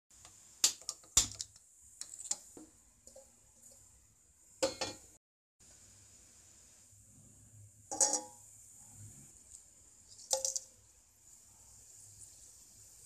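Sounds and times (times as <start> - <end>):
metal kitchenware clinking: 4.6 - 5.2, 7.9 - 8.4, 10.1 - 10.7.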